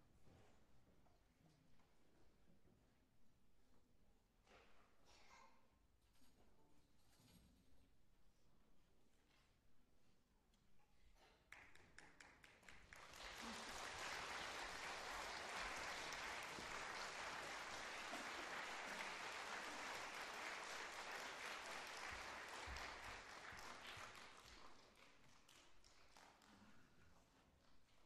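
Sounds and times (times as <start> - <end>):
audience applause: 11.6 - 26.4.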